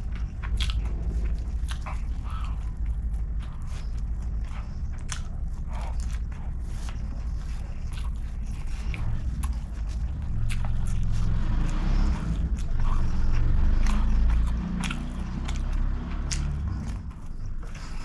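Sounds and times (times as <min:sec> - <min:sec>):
chewing rice: 0:00.0 - 0:18.0
heavy low rumble: 0:00.0 - 0:18.0
wet mouth clicks: 0:04.5 - 0:18.0.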